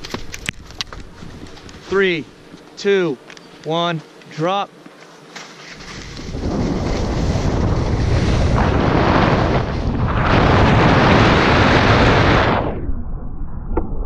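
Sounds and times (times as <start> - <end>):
skis sliding over snow: 5.4 - 9.8
wind on camera microphone: 5.8 - 14.0.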